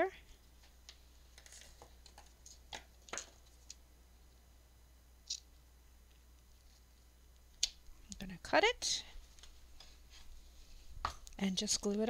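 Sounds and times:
soft fabric rustle: 9.1 - 11.0.

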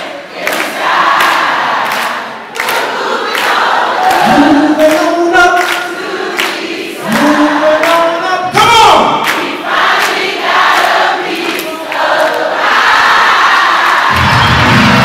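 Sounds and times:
crowd cheering: 0.0 - 5.8, 7.0 - 15.0
men singing without instruments: 4.2 - 6.0, 7.0 - 9.1.

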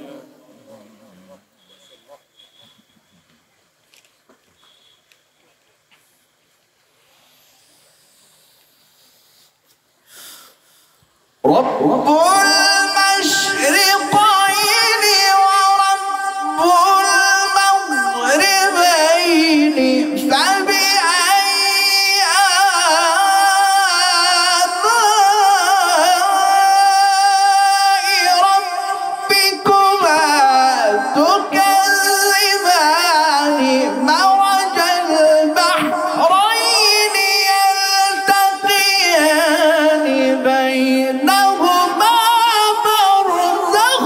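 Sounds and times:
man chanting melodically: 11.4 - 44.0.

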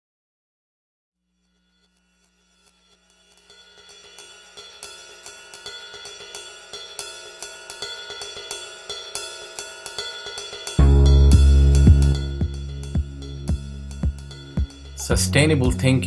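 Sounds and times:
hi-hat and cymbal pattern: 2.6 - 16.0
heavy bass and drums: 10.8 - 16.0.

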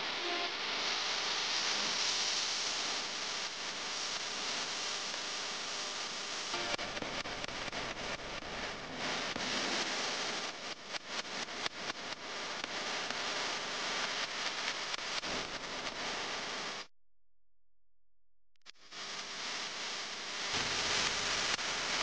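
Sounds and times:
recording hiss: 0.0 - 10.5.

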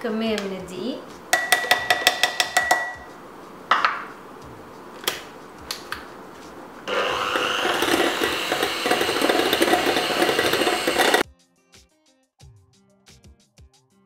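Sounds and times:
electric hand mixer running: 6.9 - 11.2.

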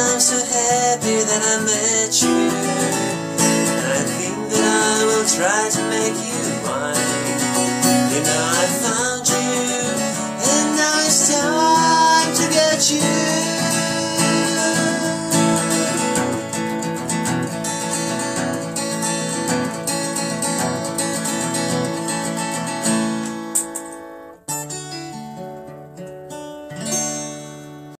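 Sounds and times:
acoustic guitar strumming: 0.0 - 28.0.

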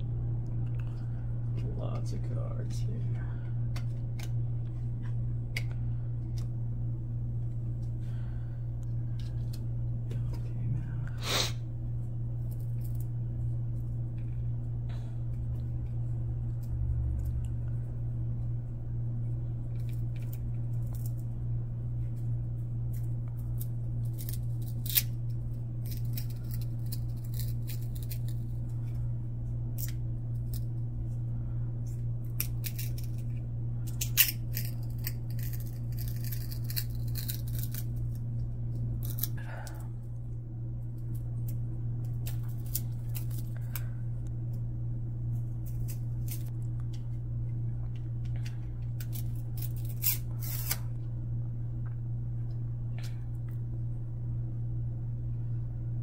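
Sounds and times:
low hum: 0.0 - 56.0
cardboard cards sliding: 49.1 - 50.8.

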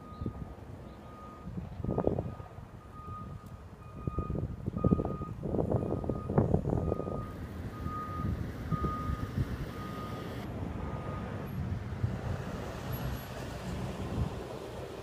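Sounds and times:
low vehicle rumble: 0.0 - 15.0
backup alarm beeping: 2.8 - 11.3.

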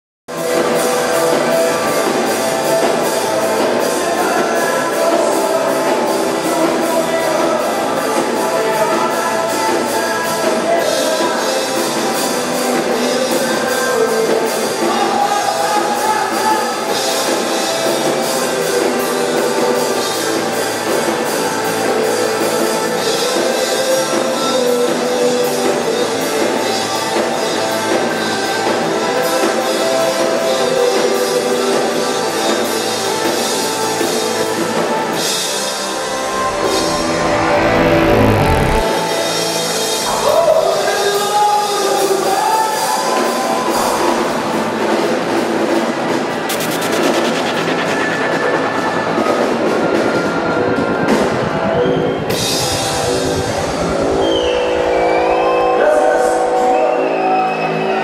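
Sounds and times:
rock band playing: 0.3 - 15.0, 32.3 - 39.8.

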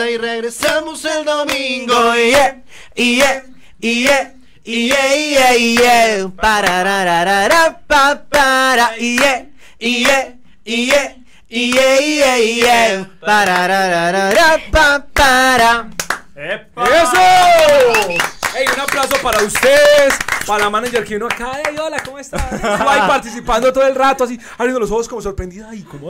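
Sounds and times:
men singing unaccompanied: 0.0 - 16.0.

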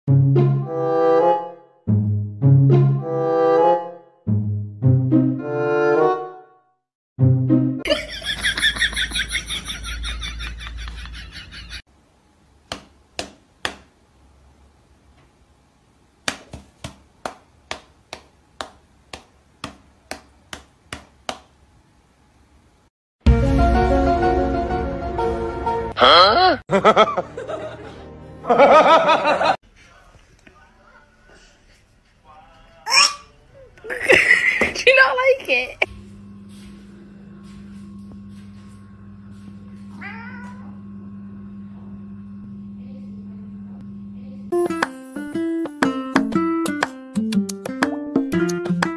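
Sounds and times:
hands slapping together: 12.7 - 13.9, 16.2 - 21.5, 44.7 - 45.1, 45.8 - 48.9
cat meowing: 39.9 - 40.8.

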